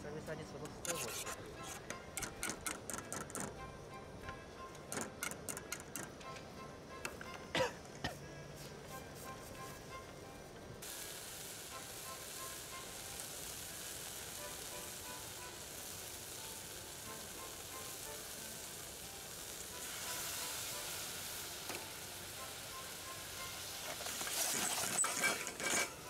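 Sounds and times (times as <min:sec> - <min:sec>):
curry sizzling in a metal pot: 0:00.8 - 0:03.6, 0:10.8 - 0:26.0.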